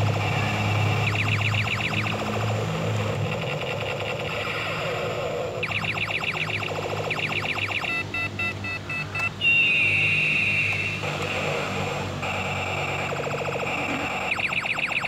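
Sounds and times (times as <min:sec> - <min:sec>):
long high electronic tone: 0:00.0 - 0:15.0
electronic toy chirping warbles: 0:00.1 - 0:15.0
short electronic beeps: 0:00.2 - 0:02.2, 0:05.6 - 0:11.4.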